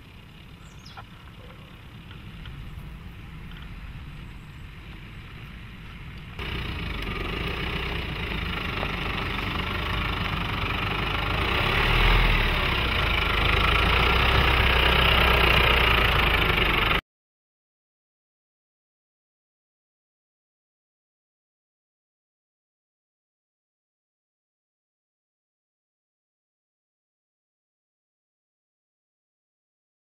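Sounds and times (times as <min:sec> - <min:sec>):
diesel engine clatter and hum: 0:00.0 - 0:17.0.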